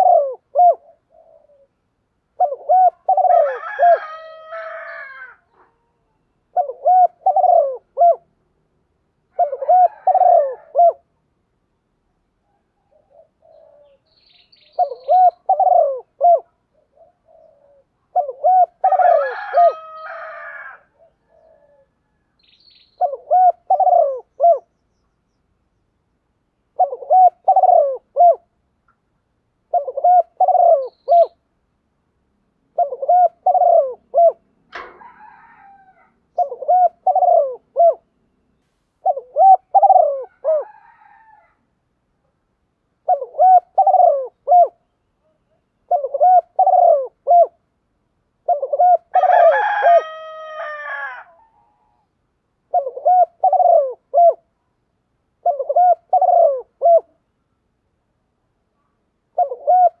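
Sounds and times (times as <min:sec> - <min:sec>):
dove cooing: 0:00.0 - 0:08.4, 0:09.3 - 0:11.1, 0:12.4 - 0:22.3, 0:23.0 - 0:24.7, 0:26.7 - 0:28.5, 0:29.7 - 0:31.4, 0:32.7 - 0:38.1, 0:39.0 - 0:41.6, 0:43.0 - 0:47.6, 0:48.4 - 0:52.1, 0:52.7 - 0:54.5, 0:55.4 - 0:57.2, 0:59.3 - 1:00.0
bird calling with stacked tones: 0:12.5 - 0:19.1, 0:29.7 - 0:31.5, 0:39.0 - 0:40.7.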